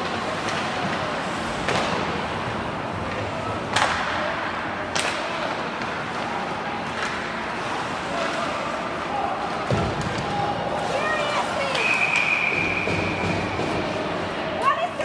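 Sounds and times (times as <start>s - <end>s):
murmur of crowd voices: 0.0s - 15.0s
puck and stick knocks: 1.6s - 2.2s, 3.1s - 4.2s, 4.9s - 7.4s.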